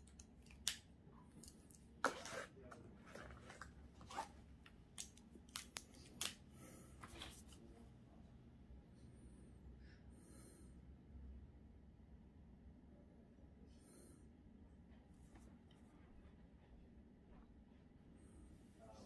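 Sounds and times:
gel pen scratching on paper: 2.0 - 4.4.

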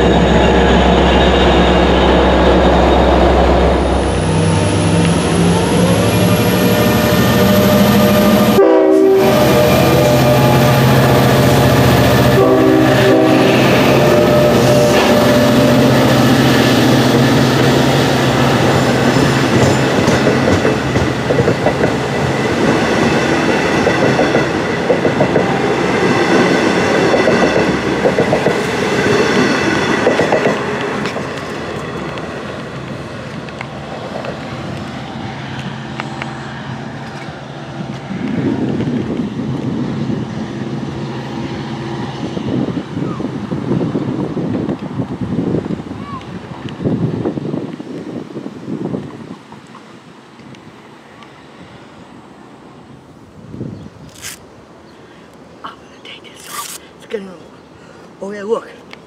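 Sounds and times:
diesel locomotive engine running: 0.0 - 44.9
train wheels clacking over rail joints: 18.7 - 34.9.

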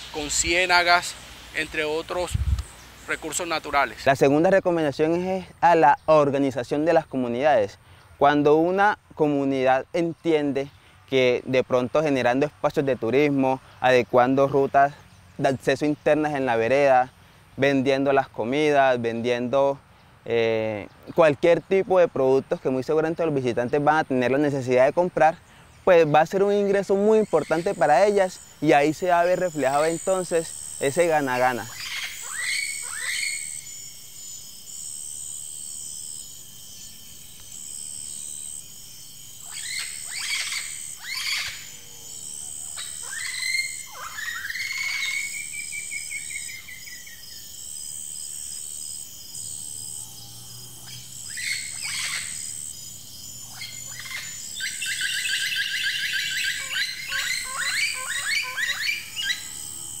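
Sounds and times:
high insect drone: 0.0 - 60.0
bird fast trill: 26.6 - 60.0
birds whistling: 26.9 - 60.0.

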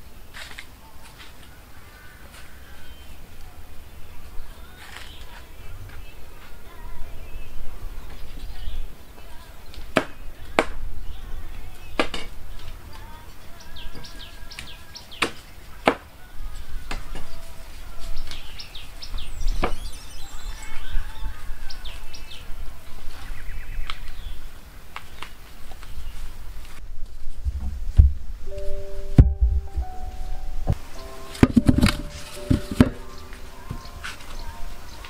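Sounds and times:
husks rustling: 30.1 - 35.0.

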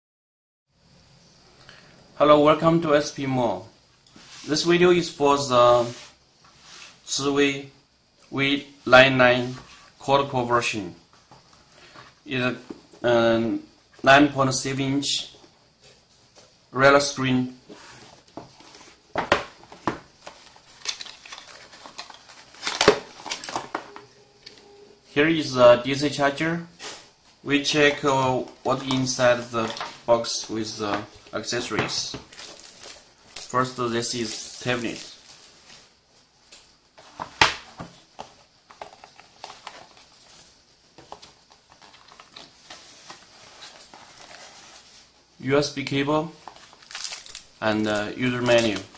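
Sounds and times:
cardboard rustling: 17.8 - 24.0, 30.8 - 33.6, 37.0 - 45.2
cardboard scraping: 37.0 - 45.1.

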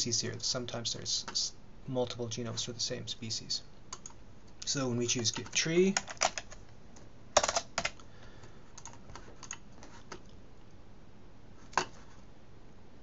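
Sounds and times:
keyboard typing: 8.8 - 10.3.

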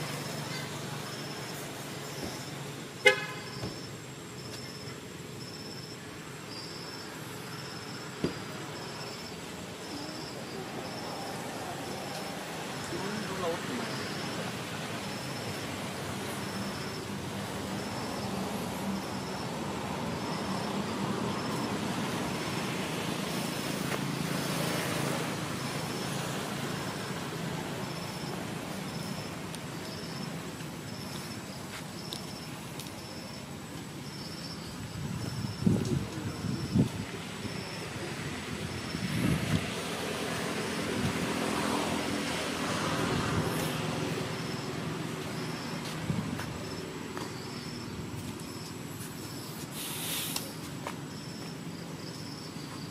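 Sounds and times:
road noise: 0.0 - 52.9
vehicle engine hum: 0.0 - 52.9
hiss: 49.5 - 50.7.

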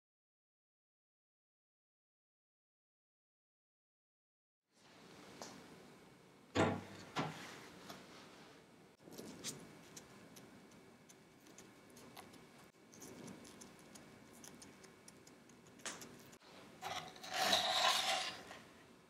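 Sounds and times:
cookie crust crackling: 9.1 - 18.7
wooden spatula scraping tray: 16.8 - 18.8.

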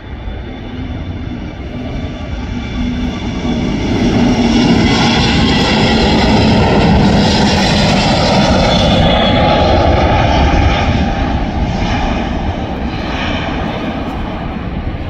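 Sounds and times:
jet engines roaring: 0.0 - 15.0.

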